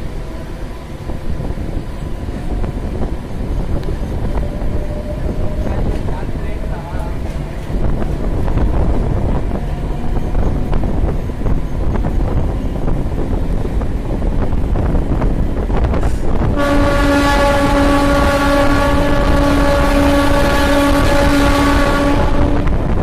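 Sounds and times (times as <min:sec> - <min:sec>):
electric train rumbling: 0:00.0 - 0:23.0
train horn long blast: 0:03.8 - 0:07.4, 0:16.4 - 0:23.0.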